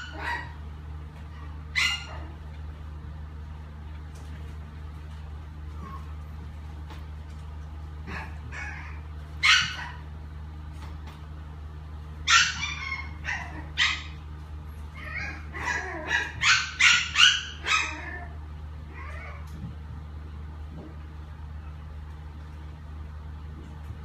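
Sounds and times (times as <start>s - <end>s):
puppy yipping and whimpering: 1.8s - 2.3s, 8.5s - 10.0s, 12.3s - 14.2s, 15.0s - 19.4s.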